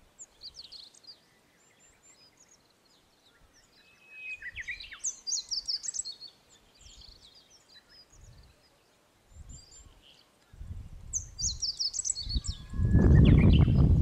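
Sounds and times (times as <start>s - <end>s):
small birds singing: 0.0s - 14.0s
wind gusts on microphone: 8.1s - 8.6s, 9.3s - 14.0s.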